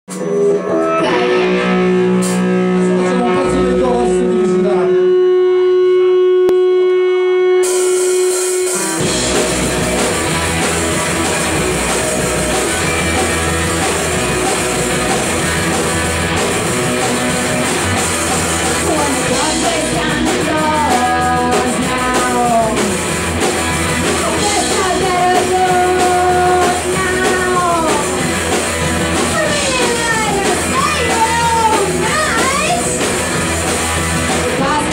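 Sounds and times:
person singing: 0.1s - 2.0s, 18.7s - 23.0s, 24.1s - 28.3s
held guitar note: 0.1s - 9.8s
live rock band: 0.1s - 34.9s.

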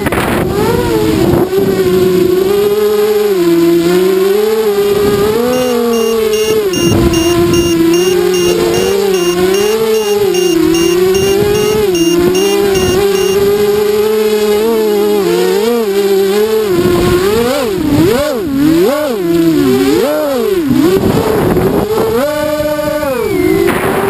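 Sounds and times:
drone motors whining: 5.2s - 13.5s
rapid electronic beeping: 5.5s - 13.4s.

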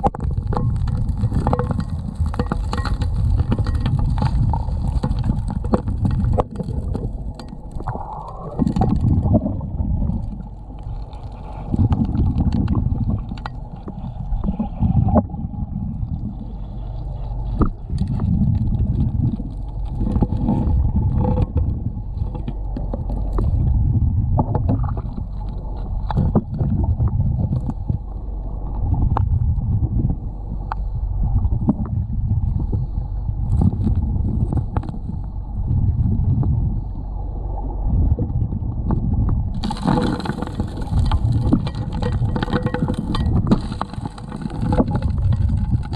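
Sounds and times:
gravel and rocks knocking: 0.0s - 9.6s, 39.6s - 45.9s
low surging rumble: 0.0s - 45.9s.

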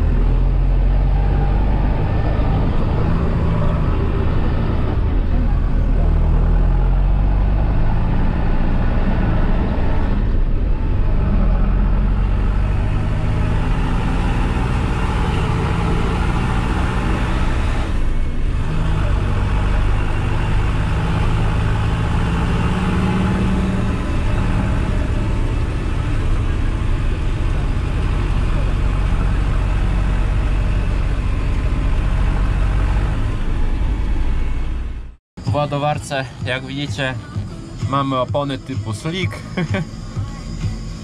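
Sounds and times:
tractor diesel engine running: 0.0s - 41.0s.

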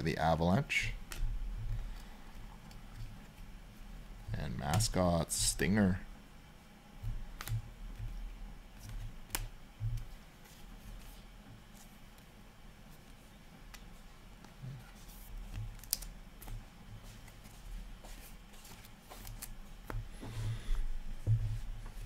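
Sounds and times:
cards flicking and snapping: 7.0s - 8.0s, 8.7s - 10.1s, 15.4s - 16.6s, 18.2s - 20.0s.

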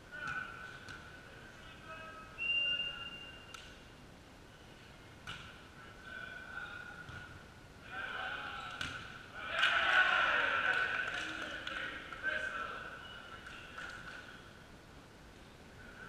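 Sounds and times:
whistle blast: 2.4s - 3.5s
players shouting: 9.3s - 11.1s.

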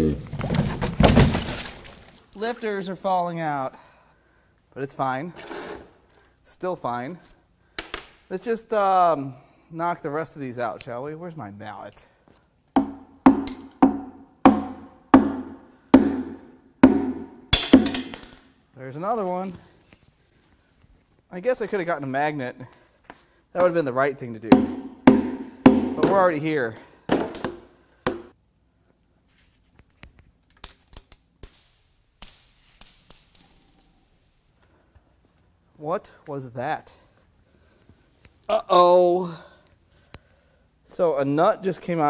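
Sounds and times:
mallet striking engine block: 12.8s - 18.1s, 24.5s - 26.2s.

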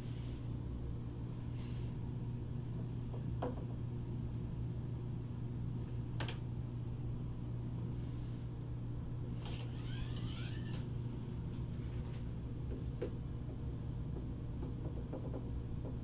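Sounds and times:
low mechanical hum: 0.0s - 16.0s
scraping rustle with squeaks: 9.5s - 10.9s.

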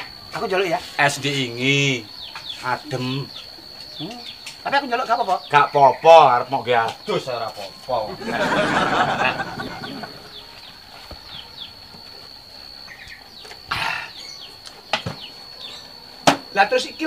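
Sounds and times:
faint high whine: 0.0s - 17.0s
small birds chirping: 0.0s - 17.0s.

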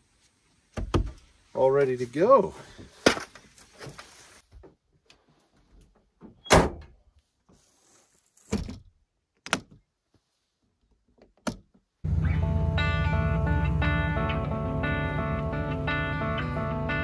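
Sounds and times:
tailgate slammed shut: 6.4s - 6.9s
guitar music: 12.1s - 17.0s.

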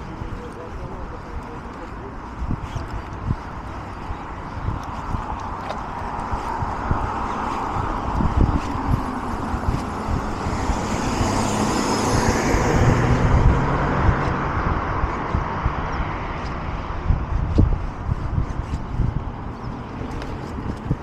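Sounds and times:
road traffic noise: 0.0s - 21.0s
car driving past: 10.5s - 14.6s.

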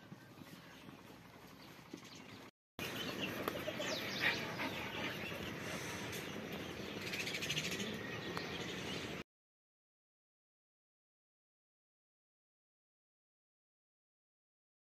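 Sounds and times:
small birds chirping: 0.0s - 9.2s
outdoor background: 0.0s - 9.3s.

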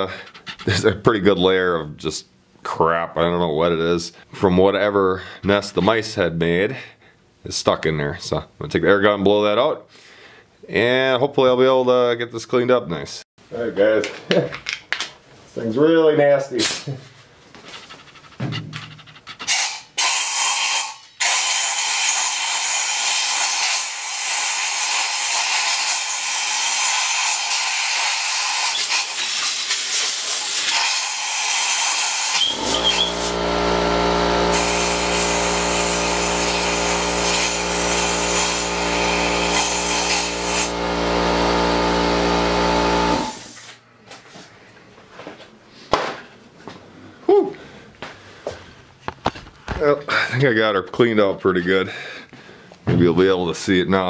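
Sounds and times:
droning machine hum: 32.5s - 43.5s.

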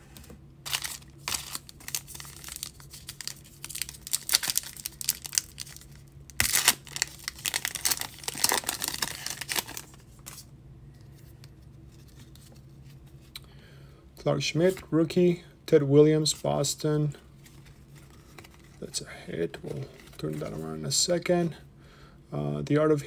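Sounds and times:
foil wrapper crinkling: 0.6s - 10.4s
foil wrapper tearing: 0.7s - 10.4s.

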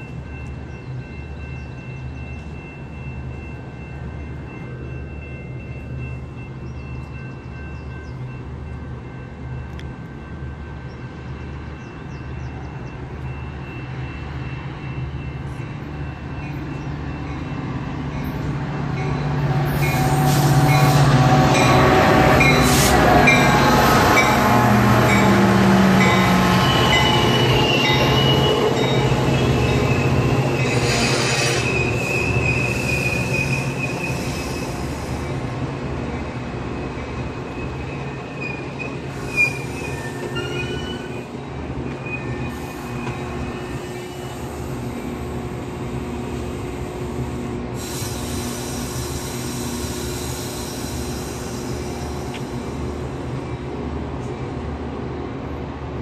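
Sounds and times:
diesel train passing: 0.0s - 56.0s
steel wheels squealing on rails: 10.0s - 53.6s.

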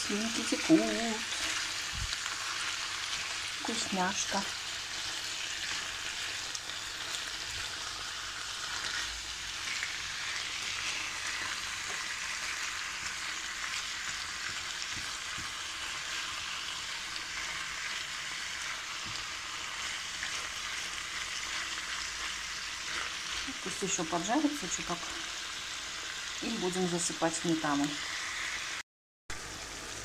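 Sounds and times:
food sizzling in frying pan: 0.0s - 30.0s.

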